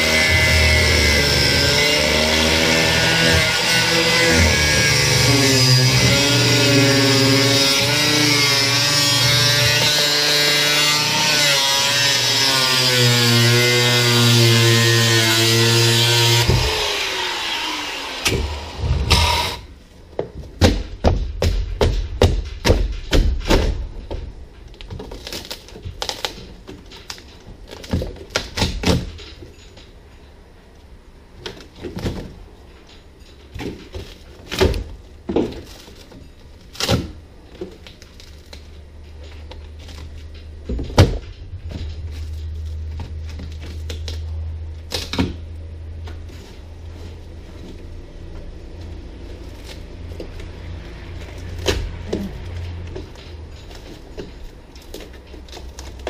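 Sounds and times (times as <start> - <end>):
hand tool chipping and scraping: 0.0 - 19.7.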